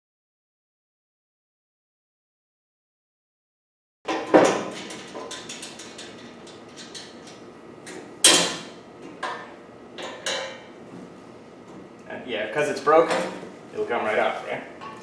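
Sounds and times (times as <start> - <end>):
sharp metal knocks: 8.2 - 10.6.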